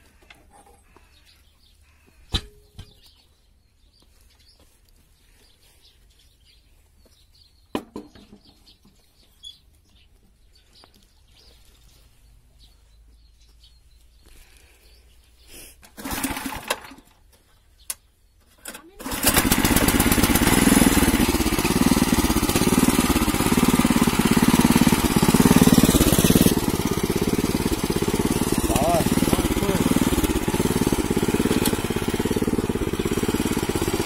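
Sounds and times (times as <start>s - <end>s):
faint birdsong: 0.0s - 34.0s
petrol engine pull-start rattle: 15.9s - 17.1s, 18.6s - 22.2s.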